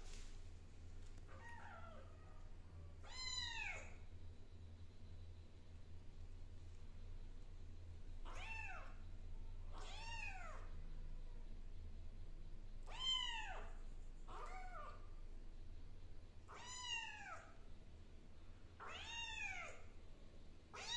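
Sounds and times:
kitten meowing: 3.0 - 3.9, 16.5 - 17.4, 18.8 - 19.8.

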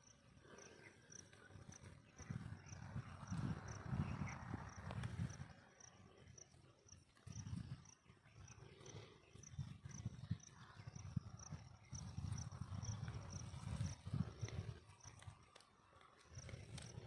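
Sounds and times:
wind buffeting microphone: 0.3 - 15.6.

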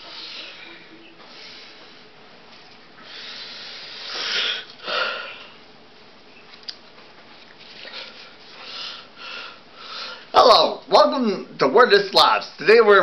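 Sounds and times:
sniffs: 3.0 - 5.4
person breathing: 3.0 - 5.6, 7.8 - 10.3.

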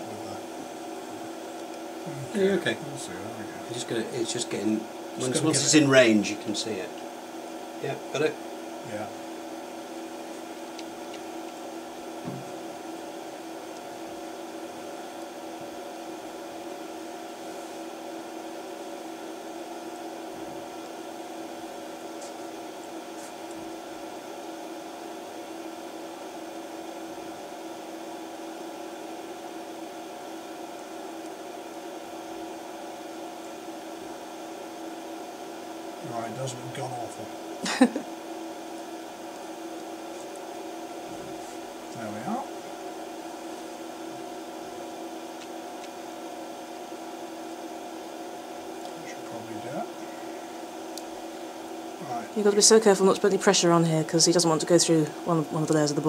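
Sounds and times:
steady machine hum: 0.0 - 56.0.

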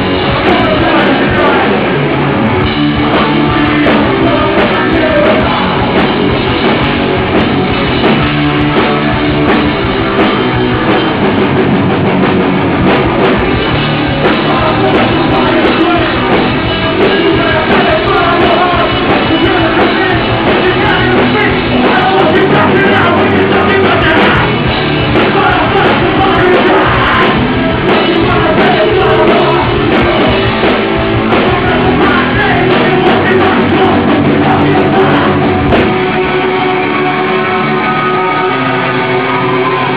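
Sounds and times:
person singing: 0.0 - 2.0, 3.0 - 6.2, 14.2 - 39.9
bass guitar: 0.0 - 39.9
distorted electric guitars: 0.0 - 39.9
drum kit: 0.0 - 39.9.

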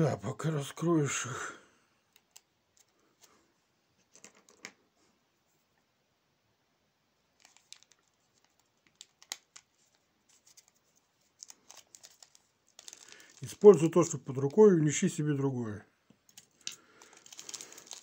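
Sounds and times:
plastic bag crinkling: 7.4 - 15.0, 16.3 - 18.0.

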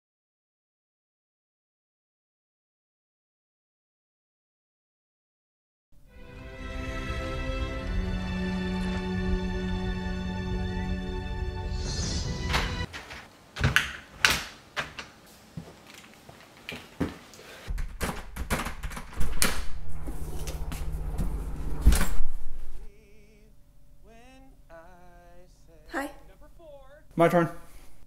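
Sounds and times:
door opening and closing: 12.1 - 15.2, 17.7 - 22.9
knocks and clicks: 17.7 - 21.4
low rumble: 18.8 - 25.8.

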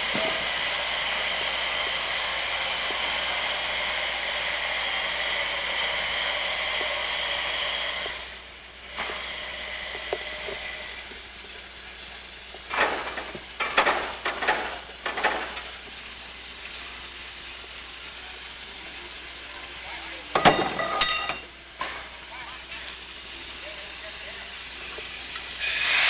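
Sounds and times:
short loud hissing bursts: 0.0 - 11.1, 25.5 - 26.0
air motor hissing: 0.0 - 22.2, 22.8 - 26.0.

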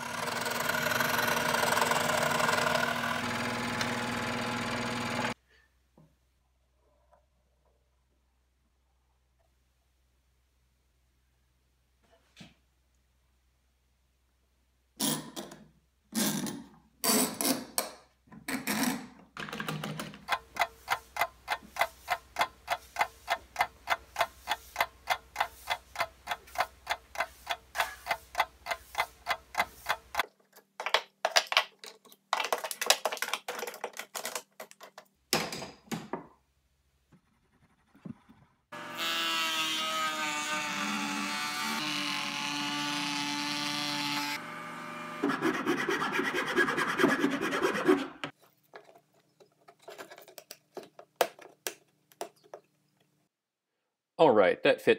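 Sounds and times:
router running: 0.0 - 5.4, 38.8 - 46.0.

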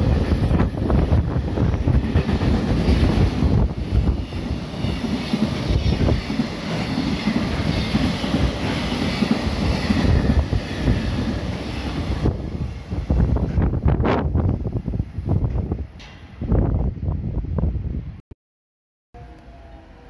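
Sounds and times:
rushing air: 0.0 - 5.0
freight train wheels clattering on rails: 0.9 - 12.3.

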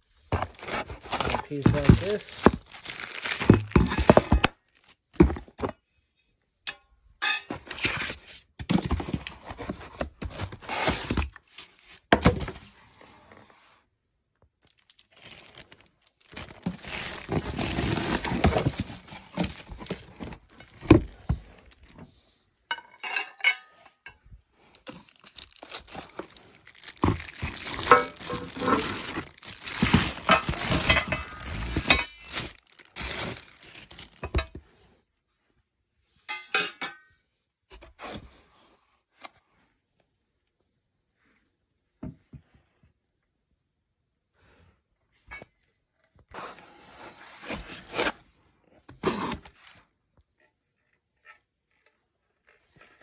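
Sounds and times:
cardboard rustling and scraping: 0.1 - 5.8, 7.5 - 13.9, 15.2 - 22.3, 24.8 - 34.7, 46.2 - 49.9.

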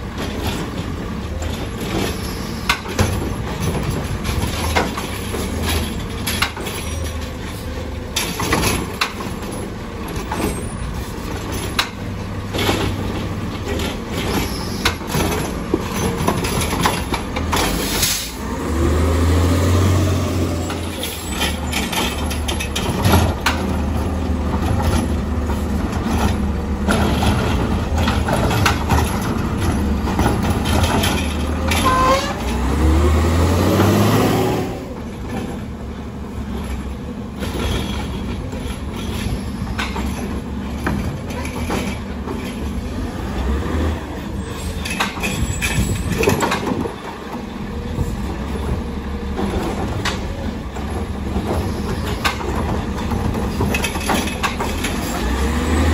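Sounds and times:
garbage truck engine revving: 17.4 - 31.8, 32.4 - 35.4, 54.2 - 55.9.

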